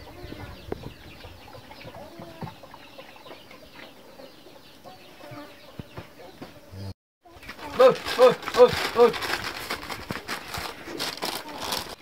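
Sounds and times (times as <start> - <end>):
chickens clucking: 0.0 - 9.2.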